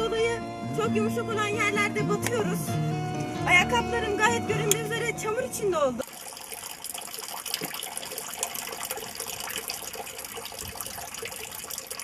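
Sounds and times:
water running from fountain spout: 6.0 - 12.0
water splashing on shoe: 6.0 - 12.0.

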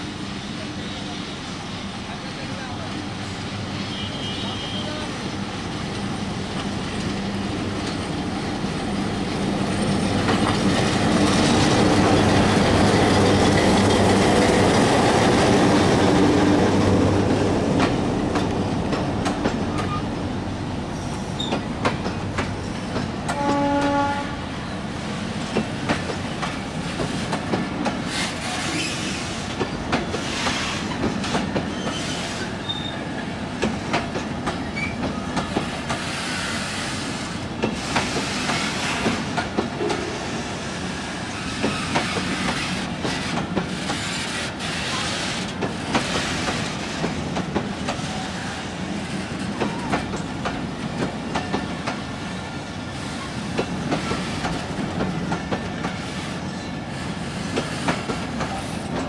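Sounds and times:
diesel locomotive engine: 0.0 - 59.0
train wheels clicking on rail joints: 9.5 - 15.8, 17.7 - 20.0, 21.3 - 24.0, 25.4 - 40.3, 41.4 - 59.0
train wheels squealing: 20.9 - 21.7, 28.1 - 33.2, 34.6 - 39.1, 41.0 - 42.8, 55.9 - 58.0
train horn blast: 23.3 - 24.5.

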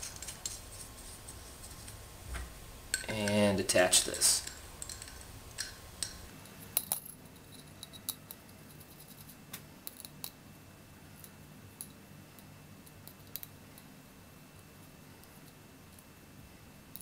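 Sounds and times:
metallic clicks of bolts and nuts: 4.1 - 8.4.

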